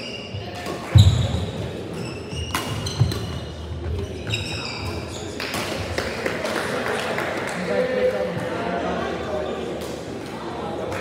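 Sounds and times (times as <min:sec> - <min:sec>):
shoes squeaking on court floor: 0:00.0 - 0:05.8.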